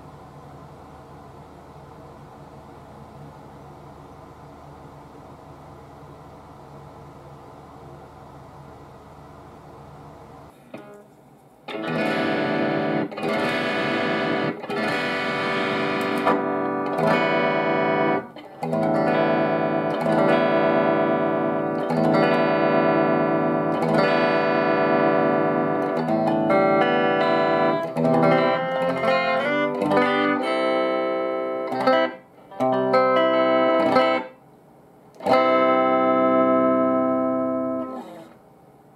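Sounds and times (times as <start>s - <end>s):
electric guitar chords: 10.5s - 34.4s, 35.2s - 38.4s.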